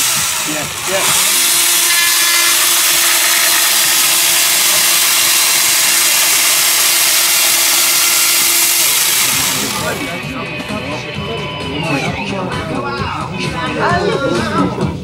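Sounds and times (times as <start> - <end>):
chainsaw cutting wood: 0.0 - 10.2.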